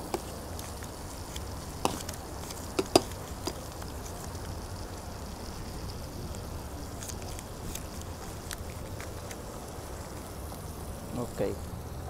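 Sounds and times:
tongs clicking on grill: 0:00.0 - 0:04.5
low street hum: 0:00.0 - 0:12.0.

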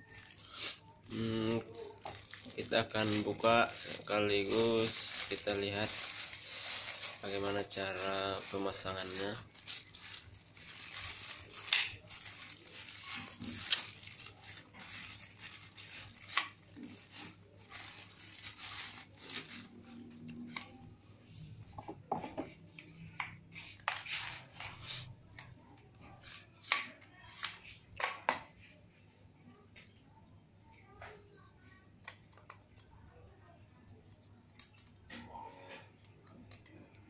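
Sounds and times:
plastic wrapping crinkling: 0:00.0 - 0:20.8.

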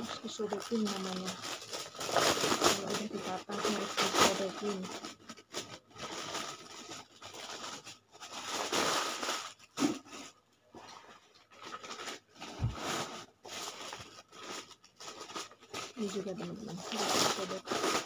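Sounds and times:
plastic packets crinkling: 0:00.0 - 0:18.0.

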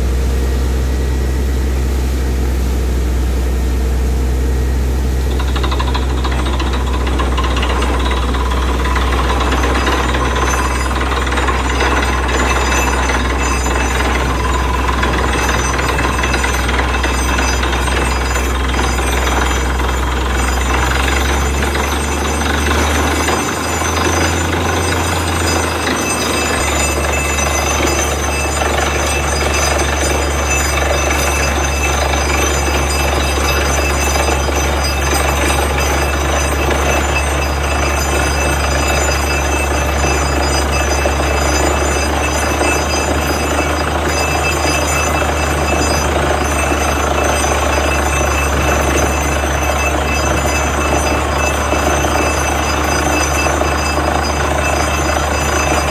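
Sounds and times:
low engine drone: 0:00.0 - 0:55.9
pounding drilling noise: 0:05.3 - 0:55.9.

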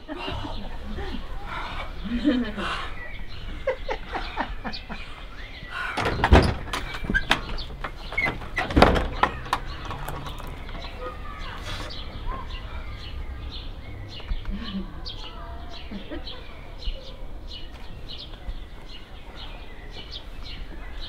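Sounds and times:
birds chirping: 0:00.0 - 0:21.0
heavy knocks: 0:06.0 - 0:10.4.

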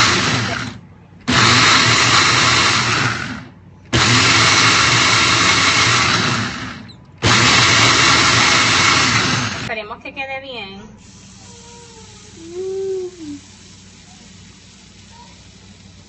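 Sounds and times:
blender motor blending liquid: 0:00.0 - 0:09.7.

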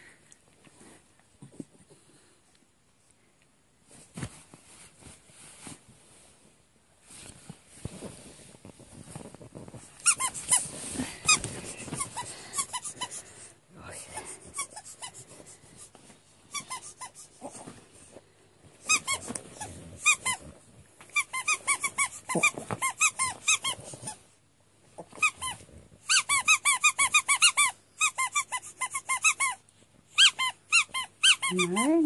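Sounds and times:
squeaky dog toy squeaking: 0:10.0 - 0:13.1, 0:16.5 - 0:17.4, 0:18.8 - 0:20.4, 0:21.1 - 0:24.2, 0:25.2 - 0:32.0.

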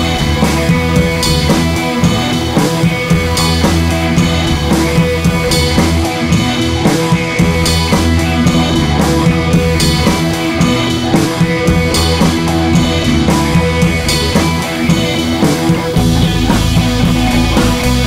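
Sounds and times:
rock music with guitar and drums: 0:00.0 - 0:18.0.

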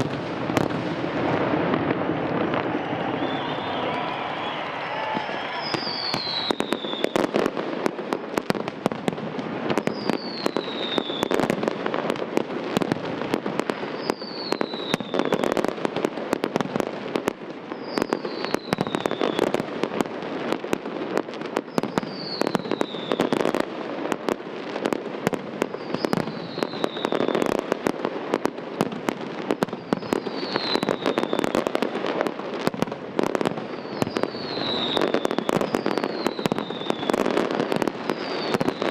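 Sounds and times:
fireworks bangs and crackles: 0:00.0 - 0:38.9
falling firework whistle: 0:01.6 - 0:07.6, 0:09.8 - 0:11.5, 0:13.9 - 0:15.7, 0:17.7 - 0:19.6, 0:21.6 - 0:23.6, 0:25.7 - 0:27.6, 0:29.5 - 0:32.8, 0:33.6 - 0:38.9.

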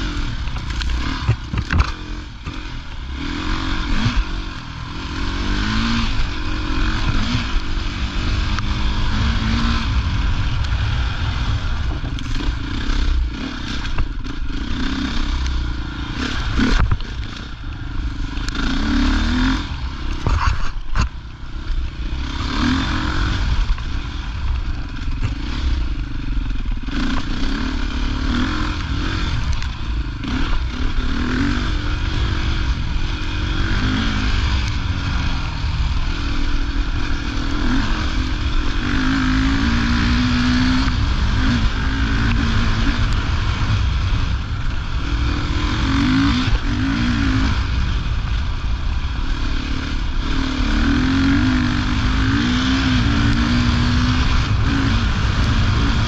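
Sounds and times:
motorcycle engine revving: 0:00.0 - 0:56.0
bike knocks and rattles: 0:00.5 - 0:02.6.

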